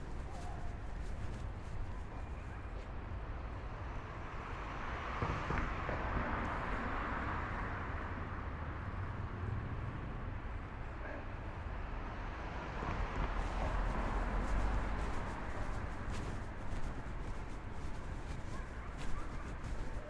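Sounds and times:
street traffic noise: 0.0s - 20.0s
vehicle passing: 12.2s - 20.0s.

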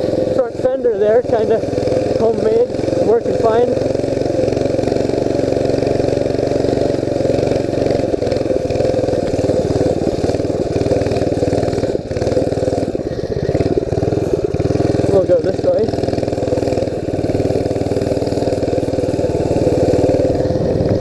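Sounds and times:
mini bike engine running: 0.0s - 21.0s.

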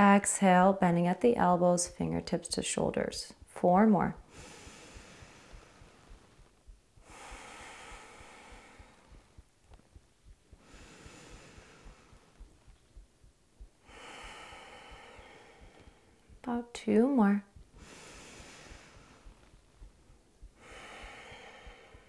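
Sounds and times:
woman breathing slowly: 4.2s - 16.5s, 17.5s - 22.0s.

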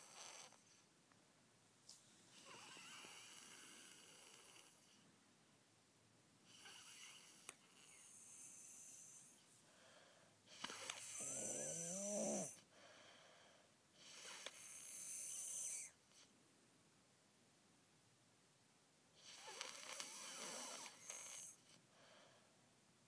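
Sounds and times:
child snoring: 0.0s - 0.8s, 2.3s - 4.9s, 6.5s - 9.4s, 10.5s - 12.6s, 14.0s - 16.0s, 19.2s - 21.6s.

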